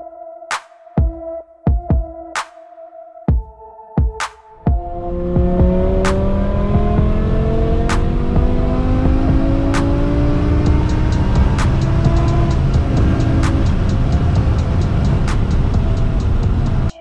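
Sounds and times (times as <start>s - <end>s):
music with sharp beat: 0.5s - 17.0s
car engine accelerating: 4.7s - 17.0s.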